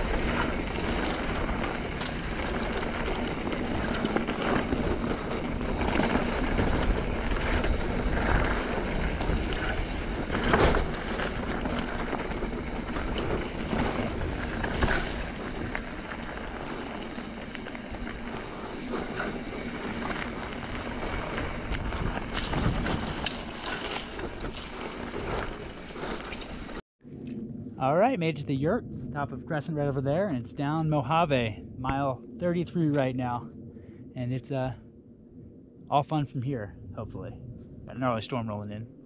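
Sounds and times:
bike rattling: 0.0 - 26.8
tyres rolling on dirt: 0.0 - 26.8
wind rush on microphone: 0.0 - 39.0.

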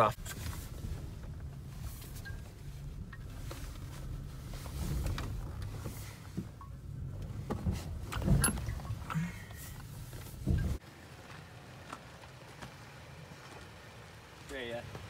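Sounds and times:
truck engine hum: 0.0 - 15.0.

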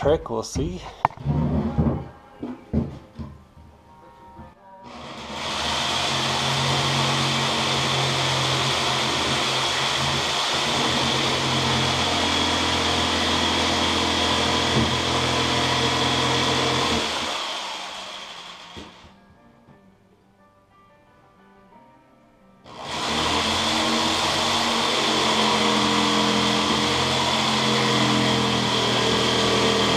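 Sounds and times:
jigsaw cutting plastic pipe: 4.9 - 19.1, 22.7 - 29.9.

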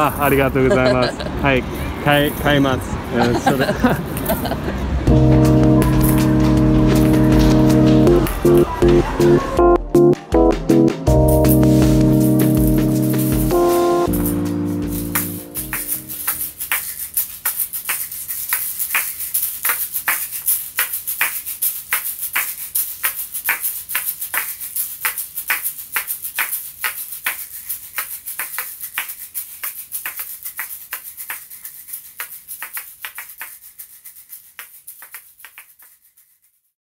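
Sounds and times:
shaker shells clacking: 0.0 - 4.6, 13.1 - 36.7.

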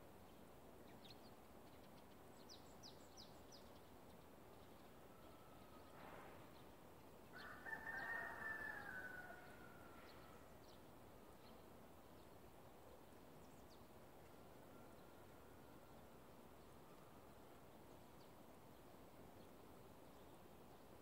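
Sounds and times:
faint rooster crowing: 5.0 - 6.3, 7.3 - 10.5, 14.2 - 17.3.

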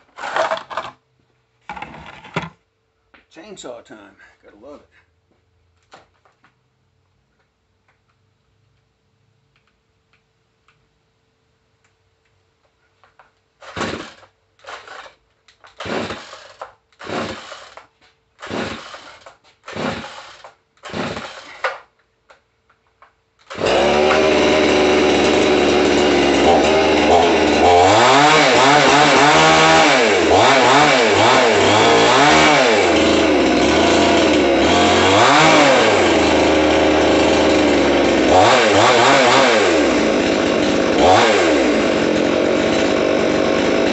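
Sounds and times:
chainsaw pull-cord strokes: 0.1 - 1.0, 13.6 - 21.9, 23.4 - 43.9
chainsaw engine revving: 13.6 - 17.8, 18.4 - 21.8, 23.4 - 43.9.

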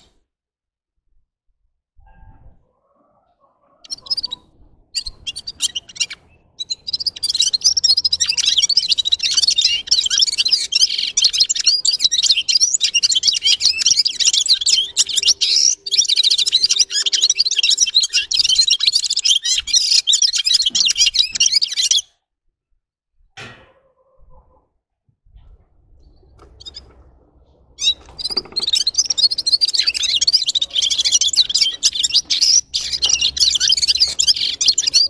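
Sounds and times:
bird chirping and twittering: 2.2 - 22.2, 25.4 - 35.0.

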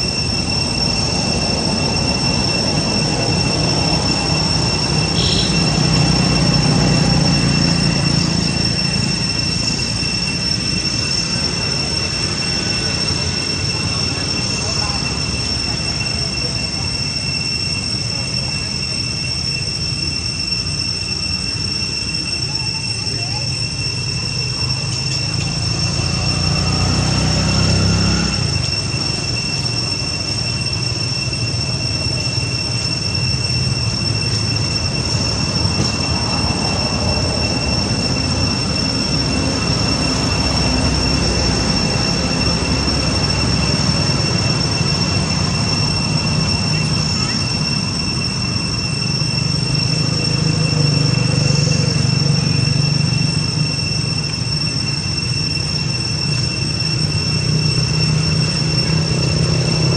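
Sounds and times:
high-pitched two-tone whine: 0.0 - 59.9.

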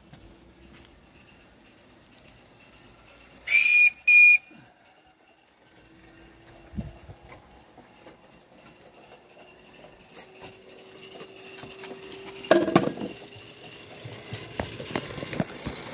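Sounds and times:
knocks and clatter: 5.6 - 15.9.

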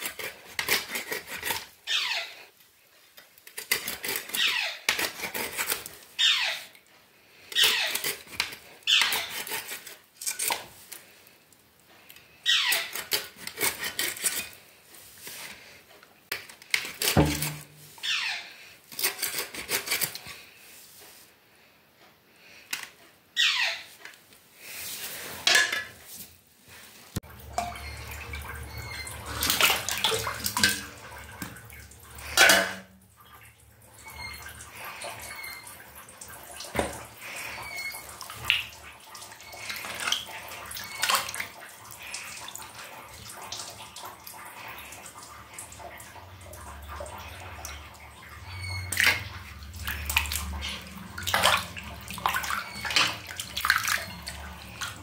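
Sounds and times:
water sloshing and splashing: 16.6 - 18.2, 24.6 - 55.0.

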